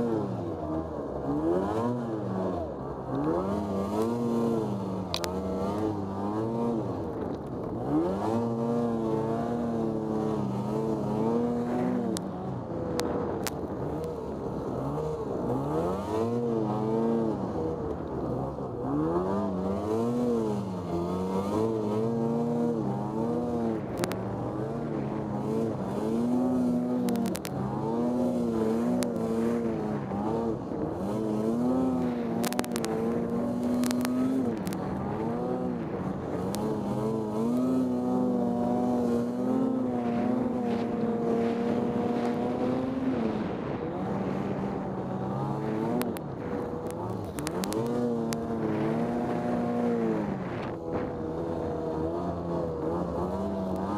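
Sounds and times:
snowmobile engine revving: 0:00.0 - 0:53.9
sharp ticks: 0:27.0 - 0:27.5, 0:32.0 - 0:34.8.

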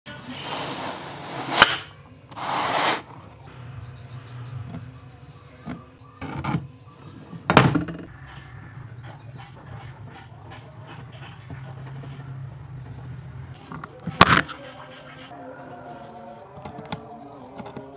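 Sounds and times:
wooden board scraping on bench: 0:00.1 - 0:03.4.

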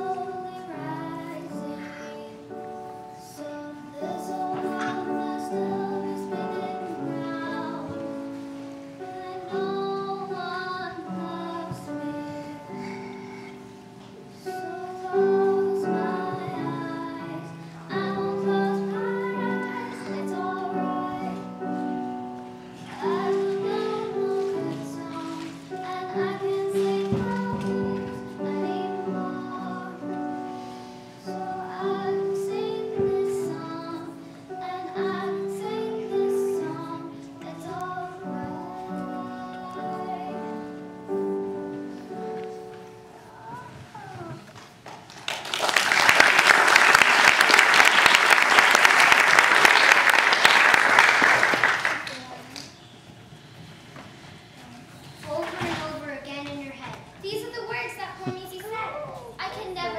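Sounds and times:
girl singing: 0:00.0 - 0:44.5.

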